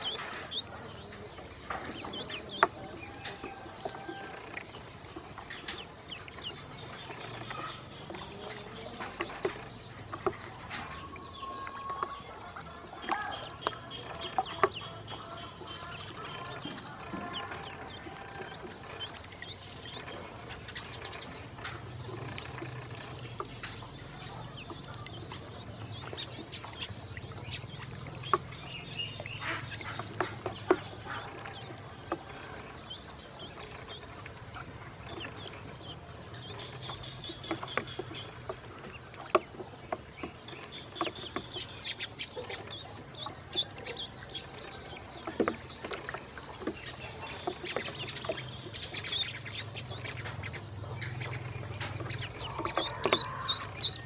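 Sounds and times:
ducklings peeping: 0.0 - 54.0
ducklings splashing in water: 0.0 - 54.0.

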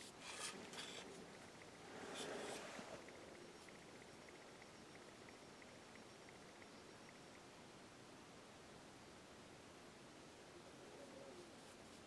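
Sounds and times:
faint regular ticks: 3.0 - 7.5.

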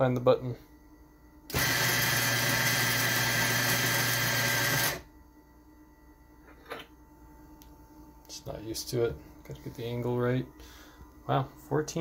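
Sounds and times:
coffee grinder grinding: 1.5 - 5.0.

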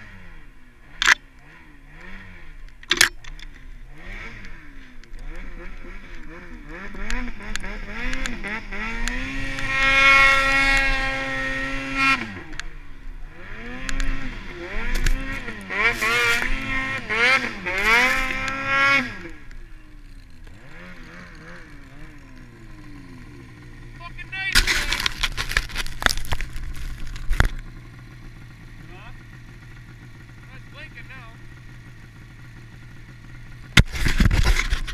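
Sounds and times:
snowmobile engine revving: 0.0 - 34.9.

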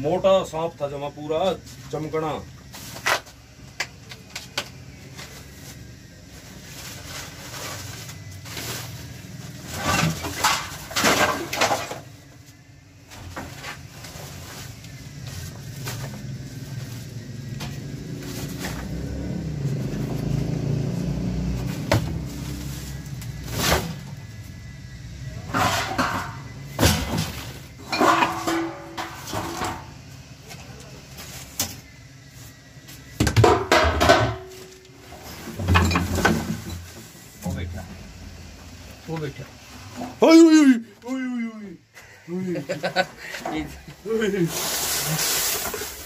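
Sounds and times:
glass bottles clinking: 27.8 - 29.6.

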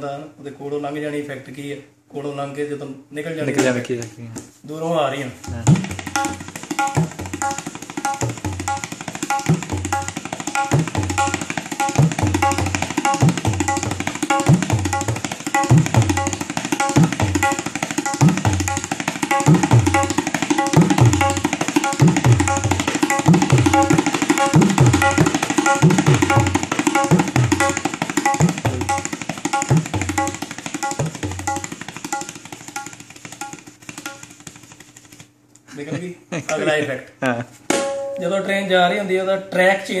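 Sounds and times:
tabla playing chugging rhythm: 5.4 - 35.2.

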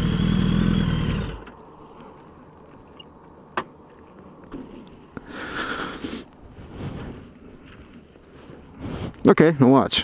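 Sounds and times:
short hissing rustle: 8.3 - 9.3.

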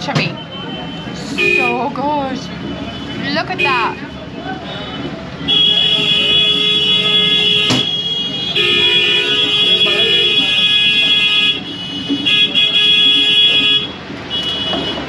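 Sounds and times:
vehicle horns honking: 0.2 - 1.9, 2.8 - 15.0.

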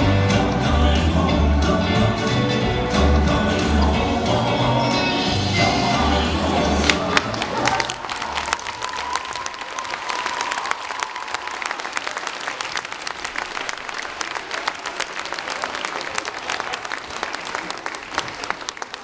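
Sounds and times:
audience applauding: 6.6 - 19.0.

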